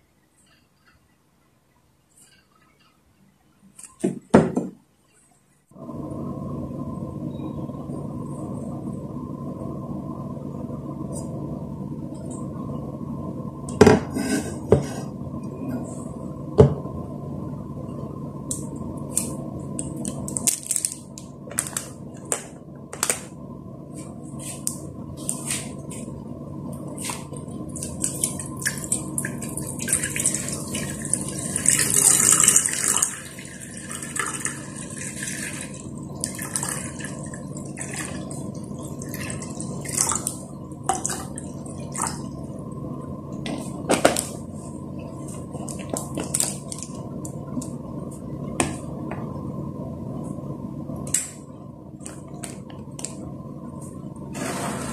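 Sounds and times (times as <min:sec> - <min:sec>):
water pouring into pot: 0:27.7 - 0:42.4.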